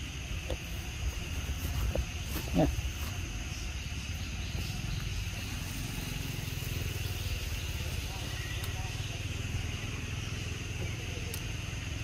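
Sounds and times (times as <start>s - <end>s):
steady high hum: 0.0s - 12.0s
macaque gruff call: 2.4s - 3.1s.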